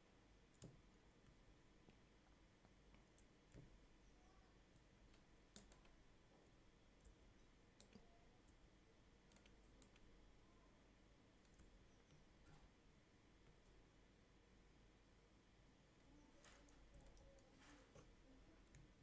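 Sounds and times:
mouse and keyboard clicks: 5.0 - 6.0, 7.0 - 8.6, 9.3 - 10.1.

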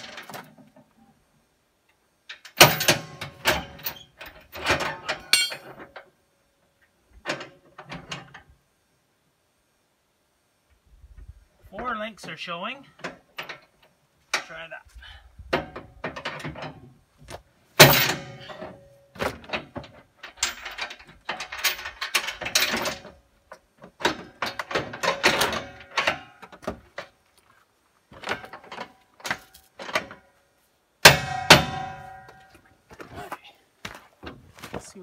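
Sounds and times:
metal chain clanking and rattling: 0.0 - 1.0, 2.3 - 6.1, 13.0 - 14.5, 15.5 - 17.0, 17.8 - 27.2, 28.1 - 30.4, 31.0 - 32.7.

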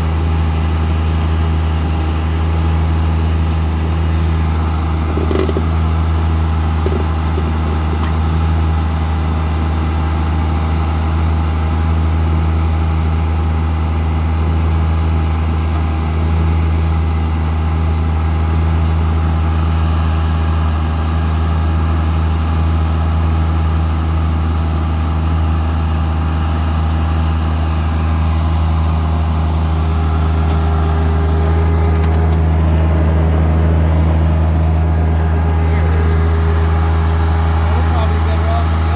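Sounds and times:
tractor diesel engine humming: 0.0 - 38.9.

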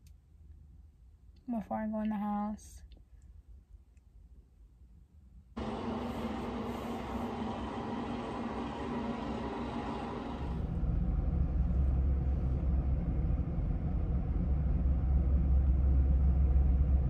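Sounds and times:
steady hum: 5.4 - 17.0
low rumble inside car cabin: 10.4 - 17.0.

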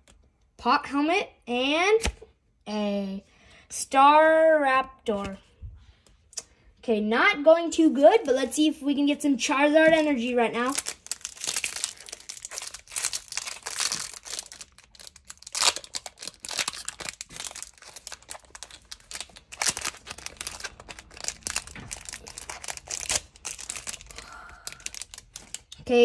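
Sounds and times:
foil wrapper crinkling: 10.5 - 25.8.

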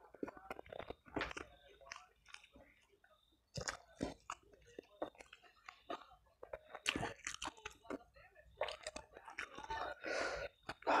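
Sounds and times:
man chewing: 3.5 - 8.0.

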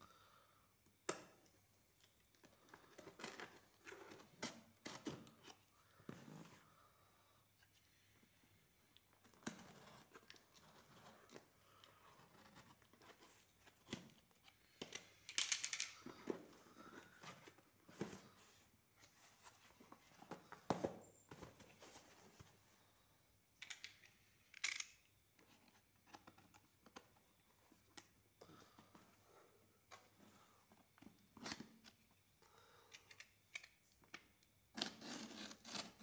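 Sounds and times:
box cutter slicing tape and cardboard: 34.8 - 36.0
tape tearing: 34.8 - 36.0.

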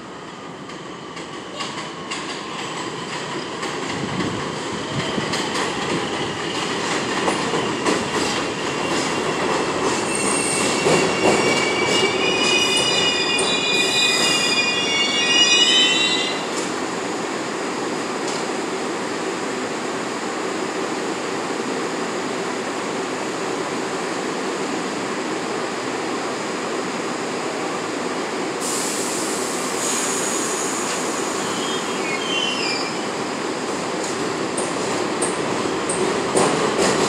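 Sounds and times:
train wheels rumbling on rail: 0.1 - 37.0
high hiss: 28.6 - 32.7.

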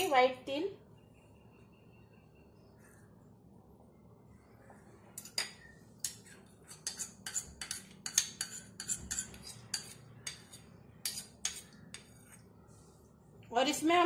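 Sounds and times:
spoon clicking and scraping cup: 5.2 - 12.1.

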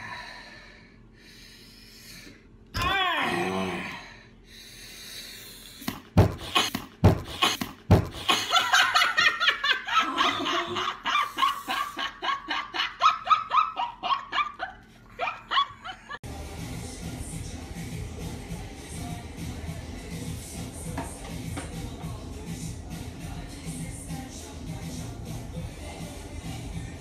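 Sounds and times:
woman laughing: 8.1 - 16.2.

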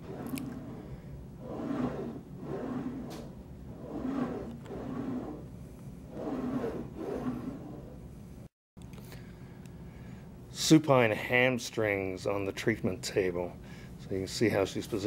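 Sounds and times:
exercise trainer carriage rolling: 0.0 - 8.1.

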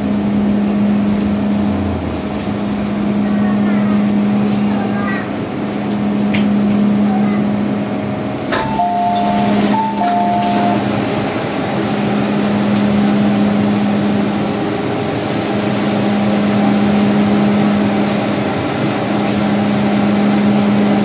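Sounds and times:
train car hum: 0.0 - 21.0
two-tone electronic chime: 8.6 - 10.9.

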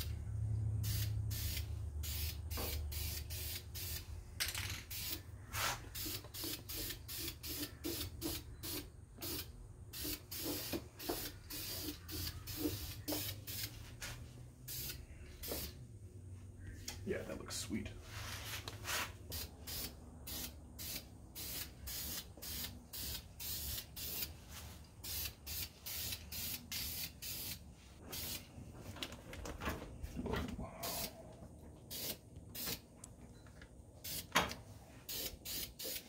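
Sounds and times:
spray can hissing: 0.8 - 4.1, 4.9 - 13.7, 14.7 - 15.8, 19.2 - 24.3, 25.0 - 28.4, 31.9 - 32.8, 34.0 - 34.3, 35.1 - 36.0.

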